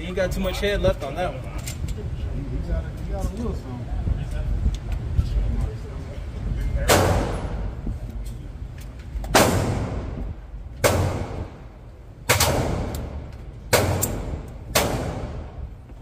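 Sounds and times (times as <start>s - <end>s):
pistol shots echoing indoors: 9.3s - 10.2s, 10.8s - 11.6s, 12.2s - 15.6s.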